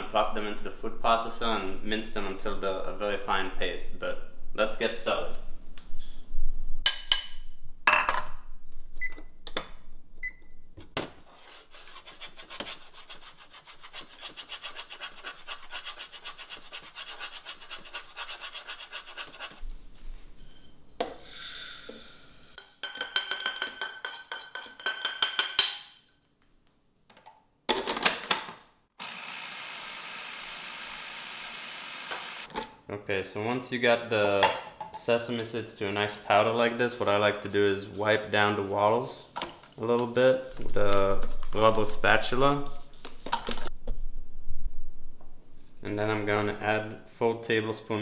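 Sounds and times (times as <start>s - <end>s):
food processor running: 29.0s - 32.5s.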